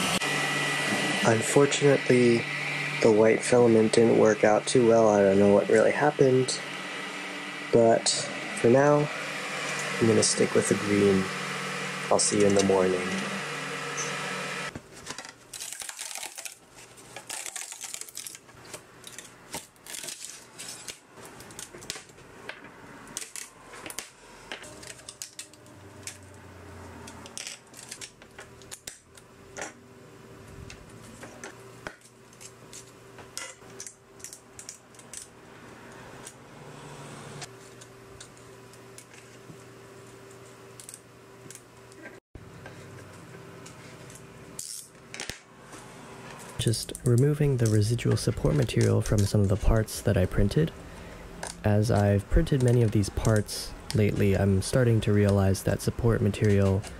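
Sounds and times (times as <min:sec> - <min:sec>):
steady low hum: 0:15.6 - 0:56.9.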